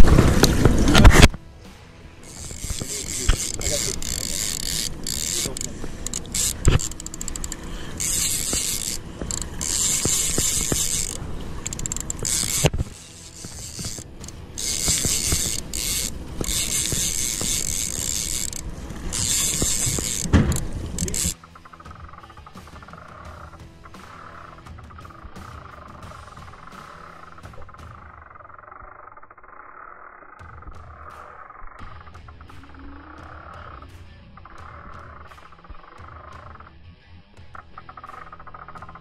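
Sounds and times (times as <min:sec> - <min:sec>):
fishing reel ratcheting: 0:02.2 - 0:21.4.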